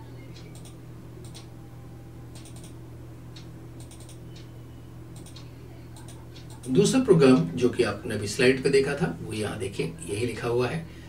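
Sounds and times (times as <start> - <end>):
low electrical hum: 0.0 - 11.0
computer keyboard keys clicking: 0.4 - 1.5, 2.3 - 2.8, 3.4 - 4.5, 5.2 - 6.8.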